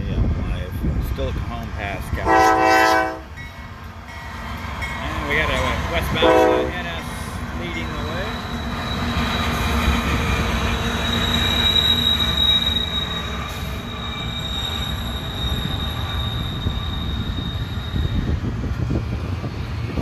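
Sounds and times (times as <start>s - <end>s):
rumble of freight cars: 0.0s - 20.0s
train wheels squealing: 6.8s - 19.6s.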